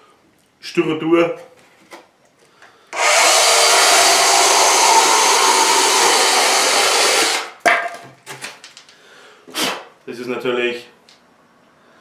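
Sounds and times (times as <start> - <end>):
mini chain saw cutting foam: 2.9 - 7.6.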